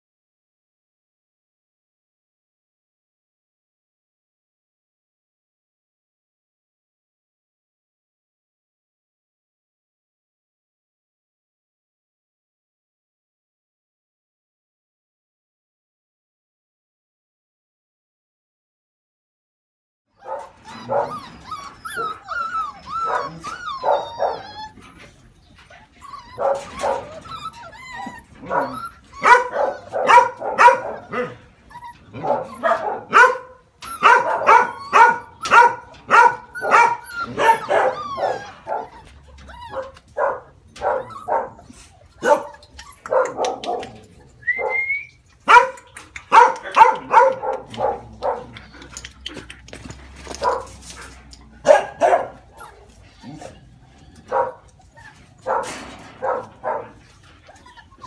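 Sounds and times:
puppies yapping: 20.2s - 58.0s
puppy yelping: 20.2s - 58.0s.

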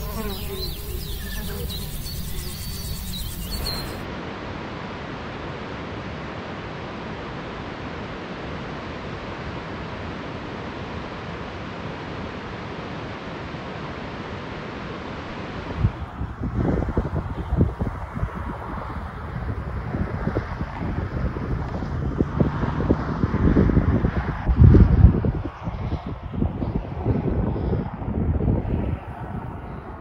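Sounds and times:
birds calling and chirping: 0.0s - 4.0s
wind on microphone: 0.0s - 4.1s, 15.3s - 30.0s.

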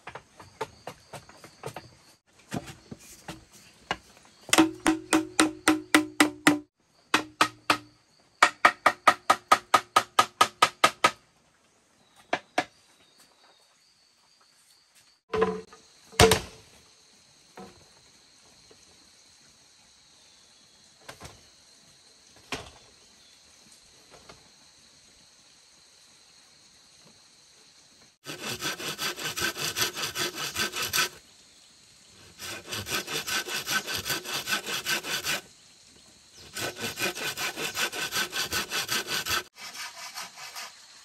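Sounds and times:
hollow knocks on bamboo: 2.5s - 11.2s, 15.3s - 16.6s
high insect drone: 23.0s - 41.0s.

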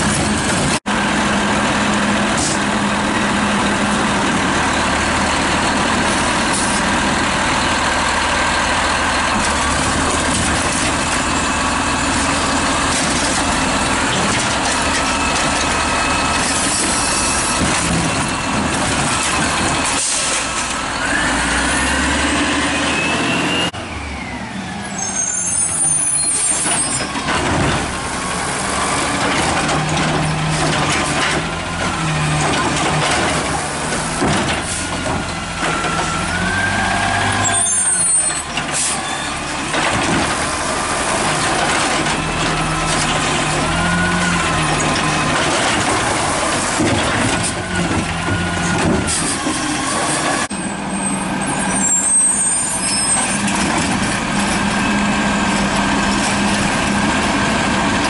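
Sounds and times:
garbage truck engine running: 0.0s - 58.0s
knocks of cart: 29.2s - 36.1s, 39.7s - 40.4s, 45.0s - 49.6s.

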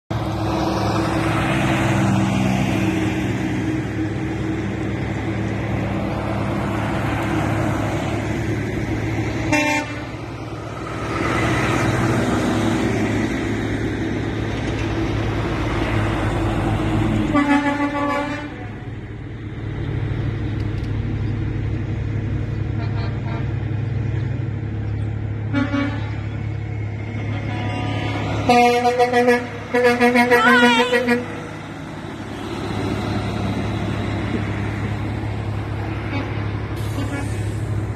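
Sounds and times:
heavy trucks driving past: 0.1s - 37.9s
truck horn: 9.4s - 10.3s, 17.2s - 18.9s, 22.7s - 23.7s, 25.4s - 26.4s, 27.0s - 31.6s, 35.9s - 37.6s.

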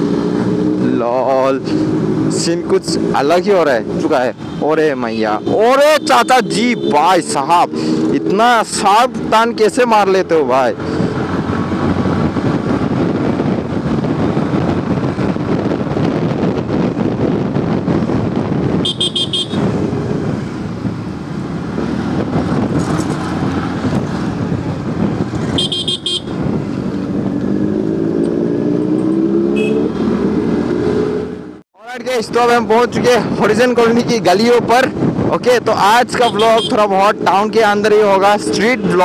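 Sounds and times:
road noise: 0.0s - 39.0s
wind noise: 0.0s - 39.0s
vehicle horn beeping: 18.8s - 19.7s, 25.5s - 26.4s, 29.5s - 29.9s, 36.3s - 36.7s.

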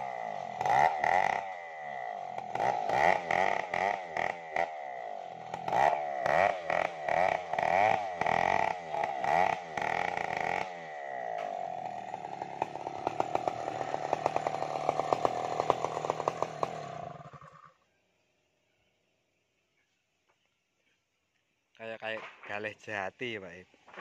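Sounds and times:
chainsaw cutting wood crackle: 0.0s - 17.7s, 23.8s - 24.0s
chainsaw revving: 0.0s - 17.8s.

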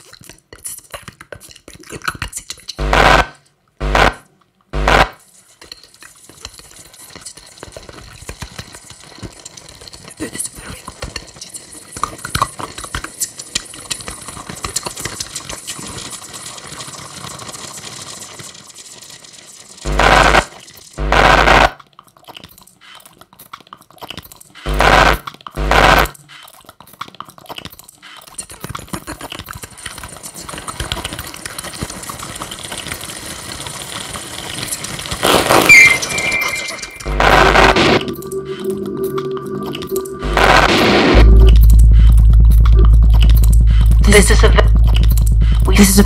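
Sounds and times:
crackling electronic noise: 2.7s - 21.8s, 24.7s - 26.2s, 28.9s - 46.0s
loud pitched electronic blasts: 2.8s - 4.2s, 4.8s - 5.2s, 19.8s - 21.7s, 24.7s - 26.1s, 35.2s - 46.0s
high squeal: 35.5s - 42.1s.

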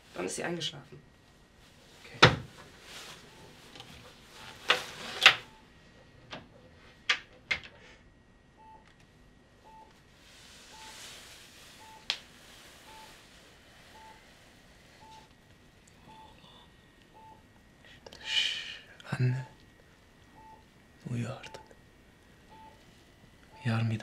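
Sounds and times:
medical monitor beeping: 3.2s - 5.8s, 8.5s - 9.0s, 9.6s - 10.0s, 10.7s - 11.0s, 11.8s - 12.1s, 12.8s - 13.2s, 13.8s - 15.4s, 16.0s - 17.6s, 18.2s - 18.5s, 19.1s - 24.0s.

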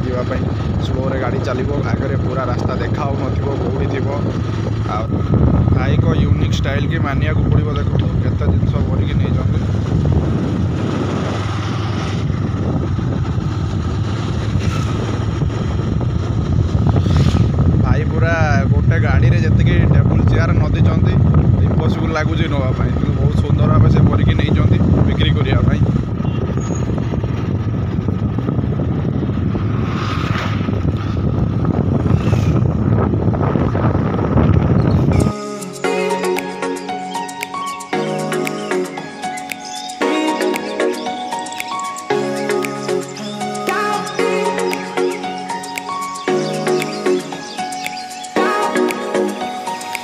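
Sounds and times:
motorcycle engine running: 0.0s - 35.3s
wind buffeting microphone: 0.0s - 35.3s.

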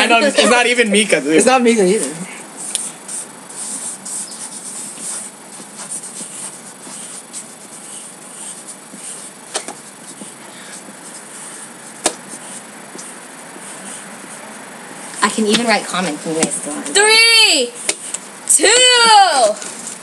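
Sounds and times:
pens scratching on paper: 2.6s - 17.1s.

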